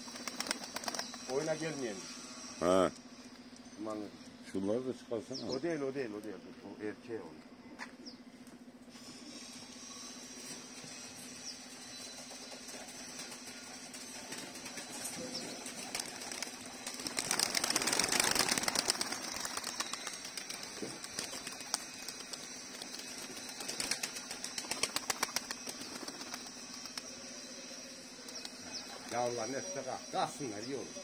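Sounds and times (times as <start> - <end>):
pigeon wings flapping: 0.0 - 1.3, 12.2 - 27.1.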